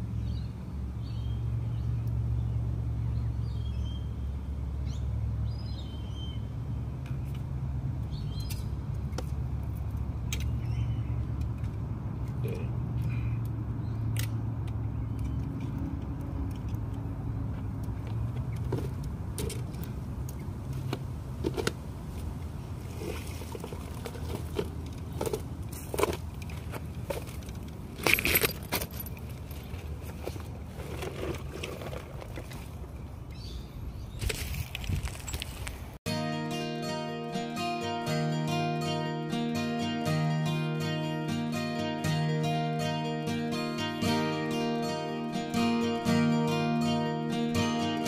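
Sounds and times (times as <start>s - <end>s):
road traffic rumble: 0.0s - 48.0s
gear clicking and rattling: 23.0s - 32.7s.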